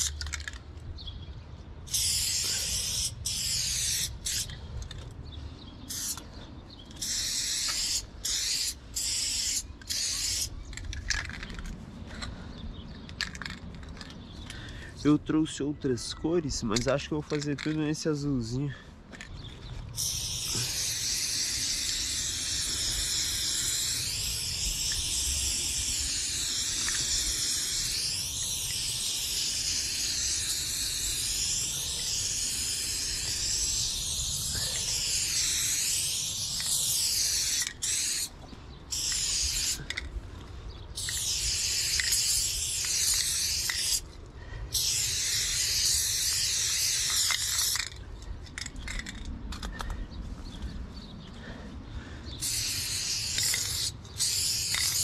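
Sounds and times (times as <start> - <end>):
spray-paint can hissing: 1.9 - 4.6, 5.9 - 6.2, 6.9 - 11.3, 20.0 - 40.0, 41.0 - 44.0, 44.7 - 48.0, 52.4 - 55.0.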